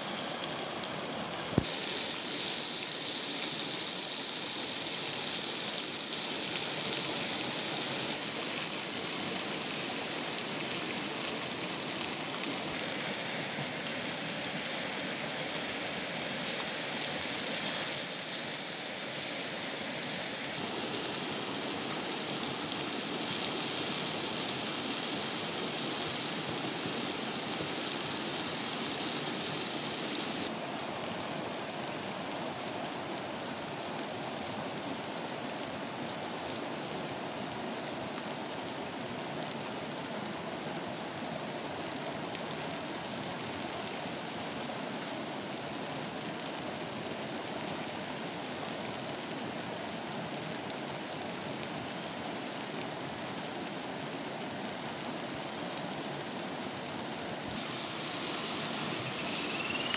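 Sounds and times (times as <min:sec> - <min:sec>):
frogs sizzling on hot stone: 0:00.1 - 0:30.5, 0:57.4 - 0:59.9.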